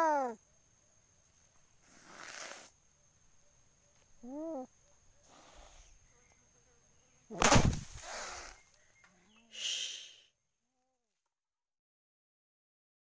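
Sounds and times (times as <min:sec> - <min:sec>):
cat meowing: 0:00.0 - 0:00.4
heavy thump: 0:07.4 - 0:08.1.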